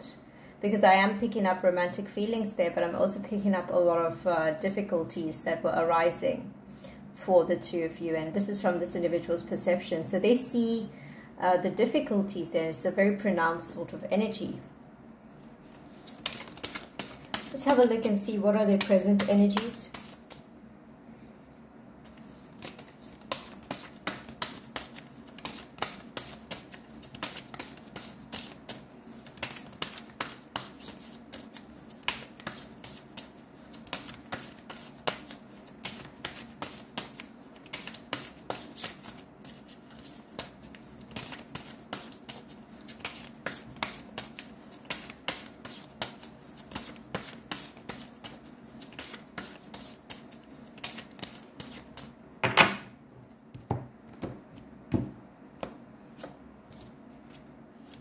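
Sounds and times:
faint steady hum: 0.0 - 58.0
cards being shuffled: 15.6 - 20.5, 22.0 - 52.1, 56.1 - 58.0.

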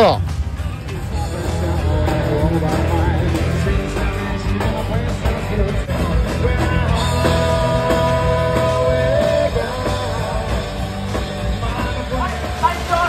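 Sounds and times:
live rock band playing: 0.0 - 13.0.

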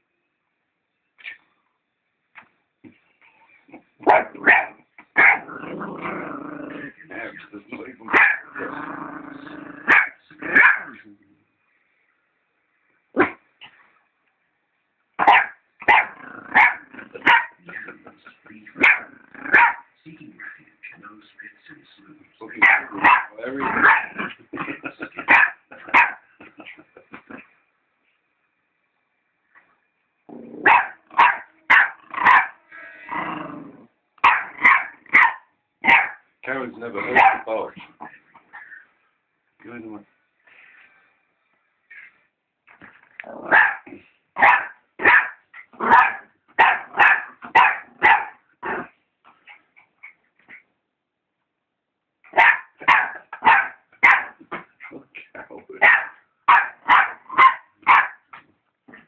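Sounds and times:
dog barking: 4.0 - 5.5, 8.1 - 8.5, 9.9 - 10.9, 15.2 - 17.6, 18.8 - 19.9, 22.6 - 24.2, 25.2 - 26.2, 30.6 - 32.6, 34.2 - 36.2, 37.0 - 37.5, 43.4 - 48.4, 52.3 - 54.4, 55.8 - 58.2
dog growling: 5.4 - 7.4, 8.1 - 11.0, 16.0 - 18.0, 18.7 - 19.7, 22.6 - 25.9, 30.3 - 31.2, 33.0 - 35.1.

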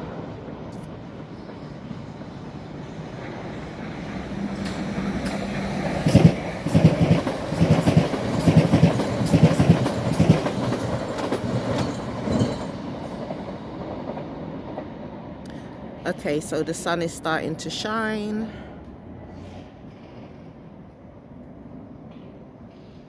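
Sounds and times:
steady train hum: 0.0 - 23.0
train wheels clacking: 4.1 - 14.9.

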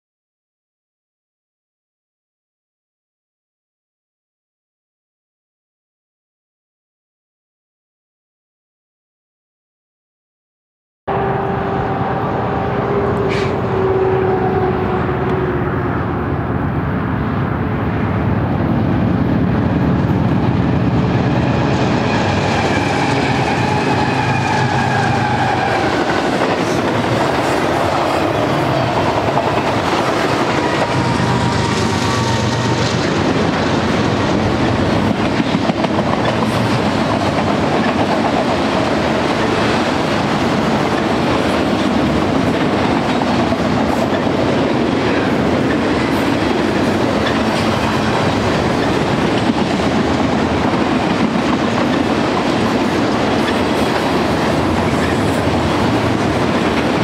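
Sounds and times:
train wheels rumbling on rails: 11.1 - 57.0
clickety-clack over rail joints: 22.0 - 57.0.

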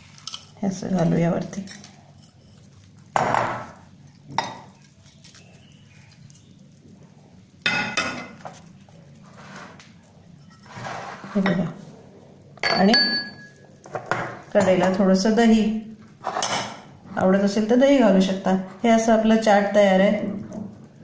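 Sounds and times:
spoon scraping bowl: 0.0 - 3.8, 9.2 - 11.7
spoon clinking against glass bowl: 12.6 - 13.6.

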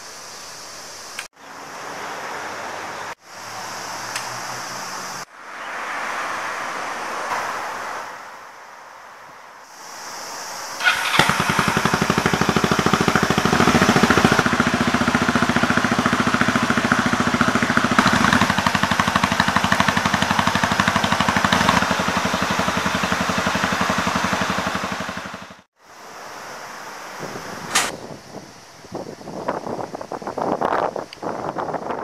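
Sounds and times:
motorcycle engine idling: 10.8 - 25.7.

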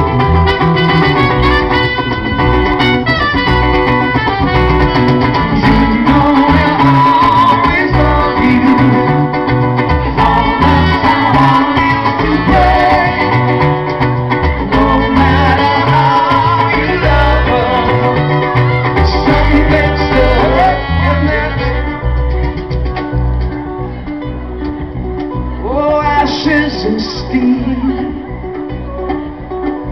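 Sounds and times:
trumpet melody: 0.0 - 9.4, 10.1 - 22.4
cajon beat: 0.0 - 29.9
electric guitar: 0.0 - 29.9
strummed acoustic guitar: 0.0 - 29.9.

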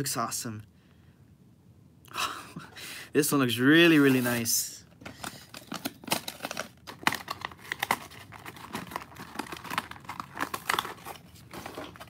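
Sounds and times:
plastic packaging crackling: 3.9 - 12.0.

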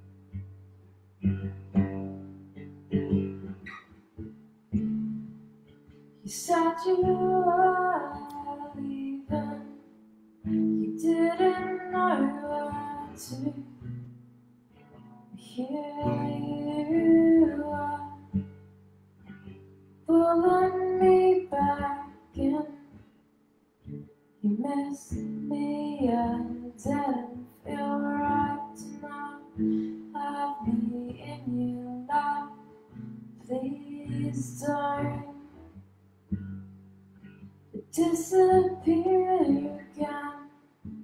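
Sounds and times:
strummed acoustic guitar: 0.0 - 23.1
woman singing slow song: 6.2 - 14.1, 15.3 - 18.6, 20.0 - 23.0, 24.4 - 35.8, 37.7 - 41.0.

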